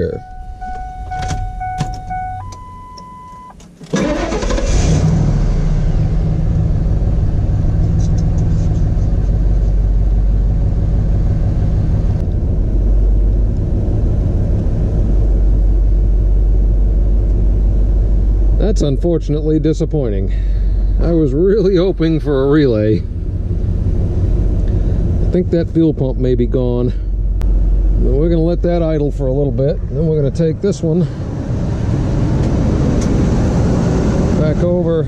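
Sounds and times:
electronic tones: 0.0s - 3.5s
starter cranking engine: 3.8s - 5.1s
truck engine idling: 5.8s - 31.5s.

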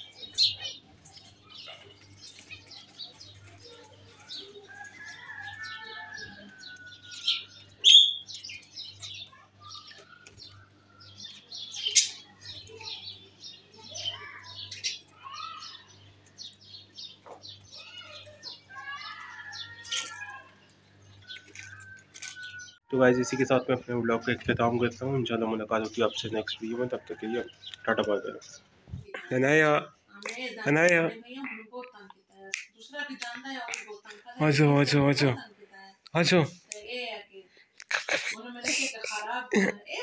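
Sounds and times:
budgerigars chirping: 5.0s - 13.0s.

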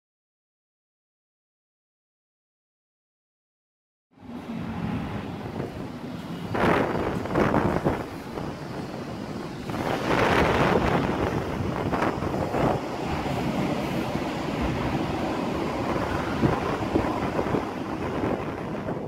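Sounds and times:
electric locomotive running: 4.3s - 19.0s
wind buffeting microphone: 5.1s - 19.0s.

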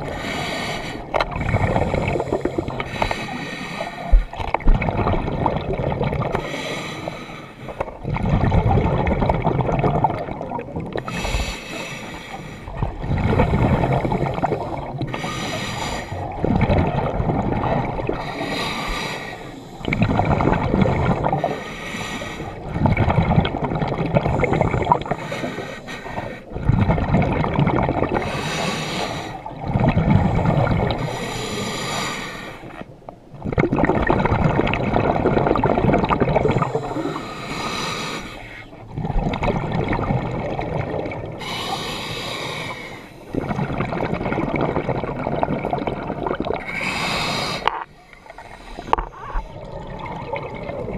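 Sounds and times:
exhaled bubbles gurgling: 0.0s - 50.9s
regulator hiss on inhale: 11.1s - 12.8s, 15.1s - 16.2s, 18.2s - 19.9s, 21.4s - 22.6s, 24.6s - 26.5s, 28.2s - 29.5s, 31.0s - 32.9s, 36.6s - 38.7s, 41.4s - 43.3s, 46.6s - 49.3s.

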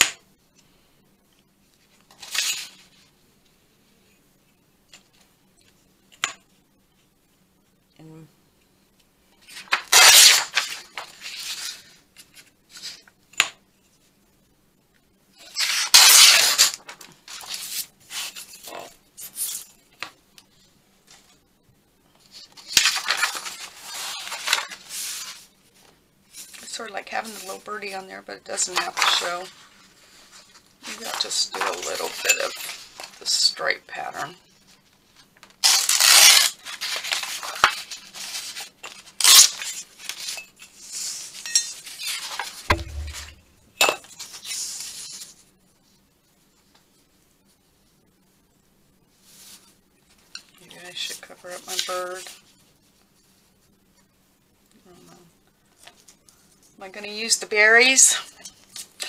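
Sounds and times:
paper tearing and rustling: 2.2s - 2.9s, 9.5s - 13.0s, 15.6s - 19.7s, 22.3s - 25.4s, 35.6s - 40.3s
paper rustling and sliding: 9.5s - 13.0s, 22.3s - 26.6s
sharp tap: 42.7s - 43.6s
low thump: 42.7s - 43.7s.

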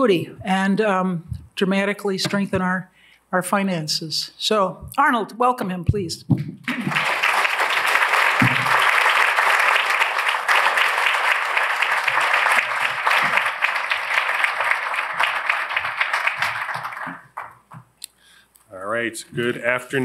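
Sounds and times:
audience applauding: 6.6s - 17.8s.

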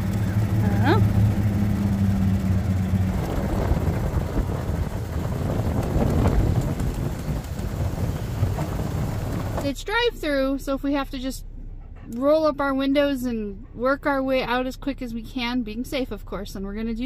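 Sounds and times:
golf cart hum: 0.0s - 17.0s
rumbling ride noise: 0.0s - 17.0s
wind on microphone: 2.6s - 9.7s.

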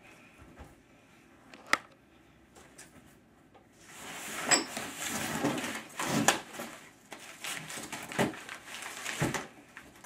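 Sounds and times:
cardboard box rustling and scraping: 3.8s - 9.4s.

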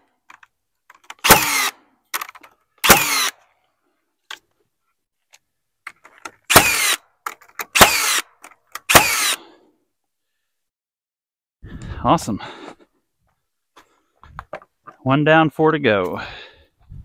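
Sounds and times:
nail gun firing: 1.2s - 3.3s, 6.5s - 7.0s, 7.6s - 8.2s, 8.8s - 9.4s.

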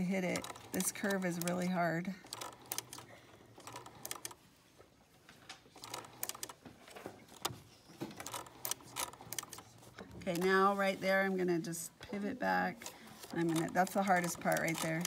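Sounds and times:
needle clicking: 0.0s - 4.4s, 5.8s - 6.6s, 8.2s - 10.7s, 12.8s - 15.0s
sewing machine stitching: 0.0s - 4.4s, 5.8s - 10.8s, 12.8s - 15.0s.

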